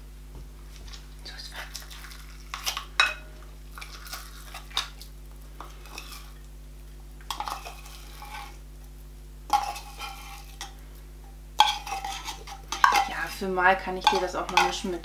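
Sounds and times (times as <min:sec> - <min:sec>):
spoon scraping tin can: 0:07.3 - 0:08.6, 0:09.5 - 0:10.8, 0:11.6 - 0:14.9.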